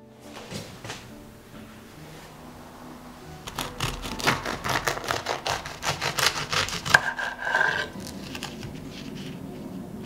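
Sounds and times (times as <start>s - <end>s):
pastry shell crackling: 3.4s - 10.0s
knife sawing through pastry: 3.5s - 9.4s.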